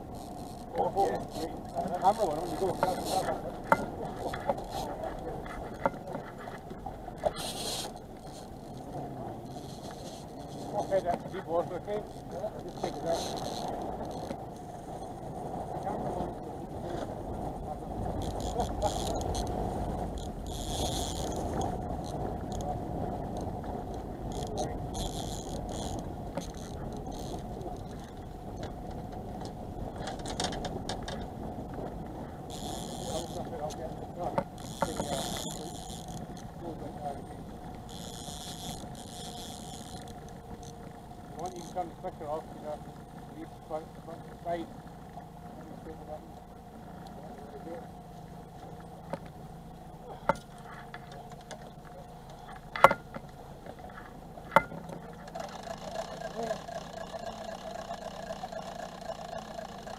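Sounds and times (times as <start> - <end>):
boat noise: 0.0 - 59.9
wind: 0.0 - 59.9
fishing reel winding: 0.2 - 0.7, 1.3 - 3.3, 7.3 - 8.8, 9.5 - 11.4, 12.0 - 14.3, 18.2 - 19.5, 20.2 - 22.6, 24.3 - 27.9, 32.5 - 33.4, 34.6 - 36.5, 37.9 - 40.8, 55.3 - 59.9.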